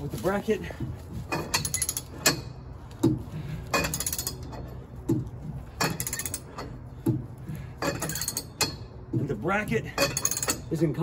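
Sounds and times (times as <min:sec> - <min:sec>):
ratchet clicks: 0:03.7 - 0:04.6, 0:05.8 - 0:07.2, 0:07.8 - 0:08.8, 0:10.0 - 0:10.7.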